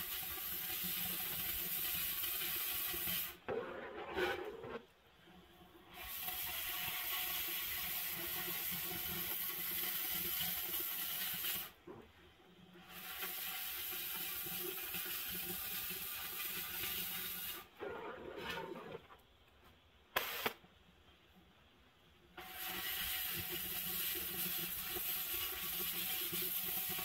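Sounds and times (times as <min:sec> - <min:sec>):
cutting torch hissing: 0:00.0 - 0:03.4, 0:05.9 - 0:11.8, 0:12.9 - 0:17.8, 0:20.2 - 0:20.6, 0:22.4 - 0:27.0.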